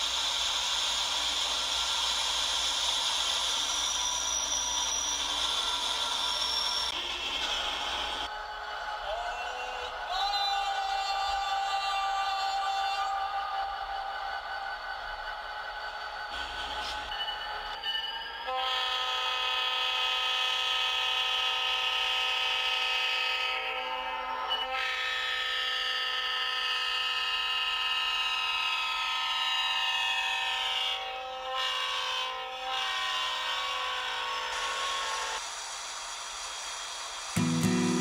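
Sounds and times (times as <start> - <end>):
locomotive horn chord: 18.5 - 23.2, 37.4 - 38.0.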